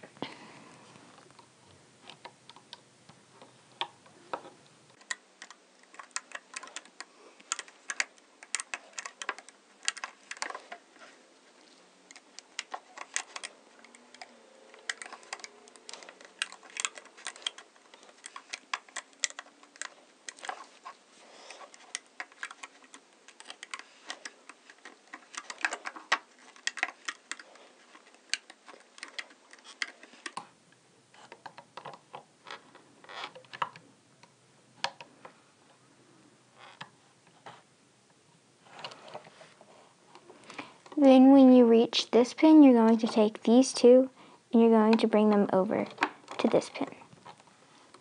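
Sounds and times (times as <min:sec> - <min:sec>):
plastic hook clicking on loom: 0:05.0 - 0:10.8, 0:12.1 - 0:20.8, 0:21.5 - 0:30.4.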